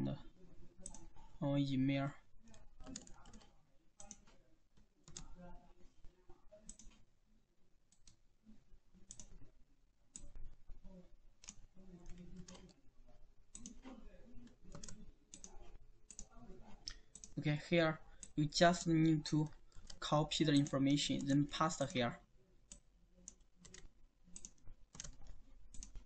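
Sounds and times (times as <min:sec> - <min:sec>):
mouse and keyboard clicks: 0:22.7 - 0:26.0.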